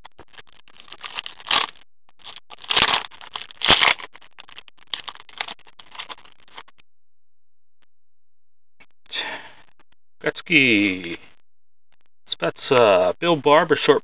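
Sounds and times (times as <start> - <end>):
foil wrapper crinkling and tearing: 0.1 - 6.7.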